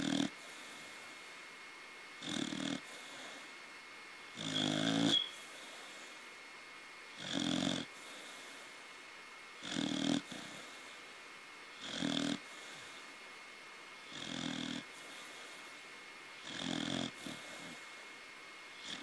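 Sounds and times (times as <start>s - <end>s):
puppy snoring: 0.0s - 0.9s, 2.2s - 3.5s, 4.3s - 6.0s, 7.1s - 8.7s, 9.6s - 11.0s, 11.7s - 13.0s, 14.0s - 15.7s, 16.4s - 18.0s, 18.7s - 19.0s.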